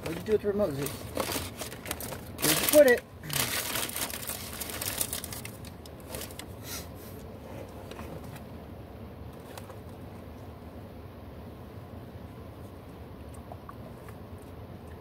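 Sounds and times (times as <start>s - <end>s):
rustling and crinkling handling: 0.0s - 8.5s
low background noise: 0.0s - 15.0s.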